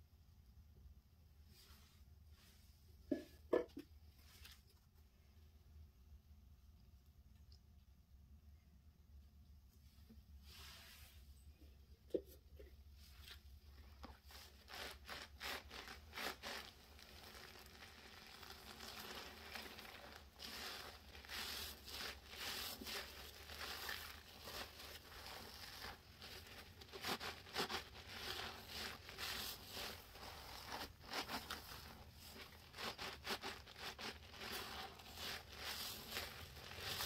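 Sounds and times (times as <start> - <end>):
wet sponges squishing: 9.4 - 37.0.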